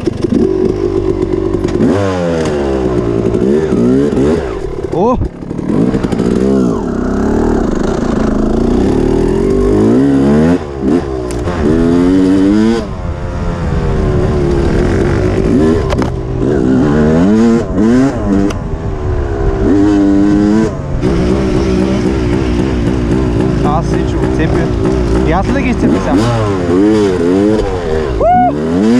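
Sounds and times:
dirt bike engine revving: 0.0s - 28.9s.

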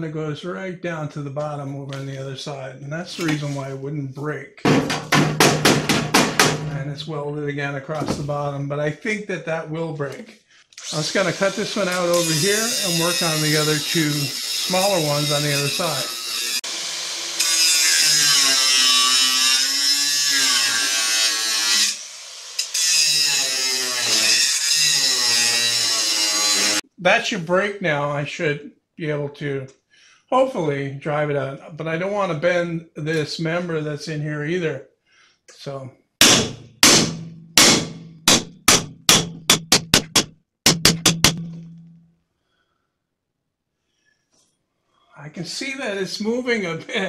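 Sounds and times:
hammer striking steel: 4.7s - 6.8s, 36.2s - 42.0s
angle grinder cutting steel: 10.8s - 26.8s.

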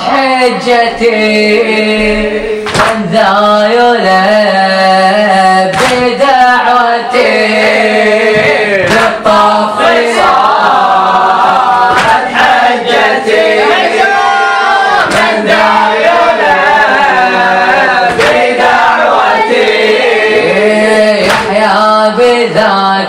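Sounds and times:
boys chanting in unison: 0.0s - 23.0s
lead reciter: 0.0s - 23.0s
hands slapping chests: 2.6s - 3.0s, 5.7s - 6.2s, 8.4s - 9.3s, 11.8s - 13.1s, 15.0s - 15.6s, 18.1s - 19.0s, 21.2s - 21.6s.

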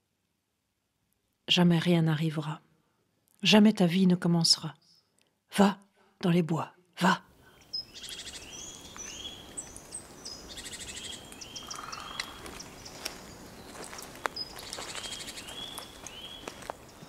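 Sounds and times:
birds calling: 7.4s - 17.0s
buzzy bird trills: 7.7s - 13.0s.

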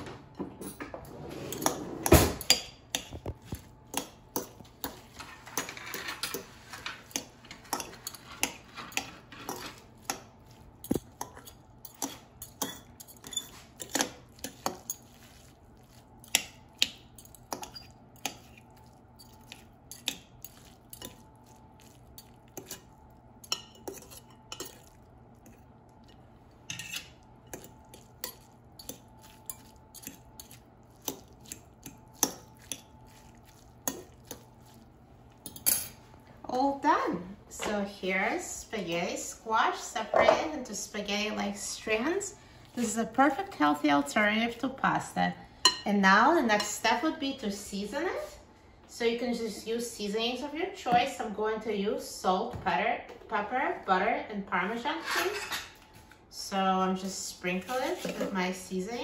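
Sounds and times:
forks scraping glass bowl: 1.1s - 2.6s, 4.8s - 34.8s, 55.0s - 55.7s.

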